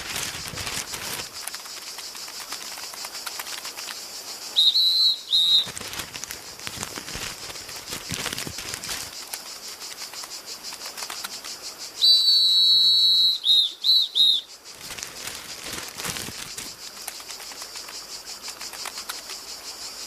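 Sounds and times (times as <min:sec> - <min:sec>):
insects chirring: 0:00.0 - 0:20.0
high whistle toots: 0:04.6 - 0:05.7, 0:12.0 - 0:14.5.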